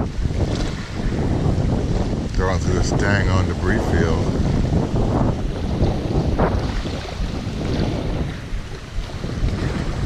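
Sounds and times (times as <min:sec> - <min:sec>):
wind noise on microphone: 0:00.0 - 0:10.0.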